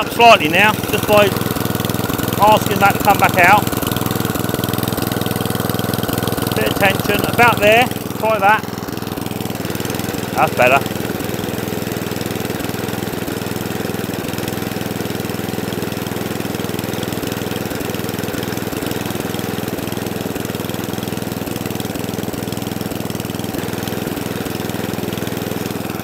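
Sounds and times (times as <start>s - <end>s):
lawnmower engine running: 0.0s - 26.0s.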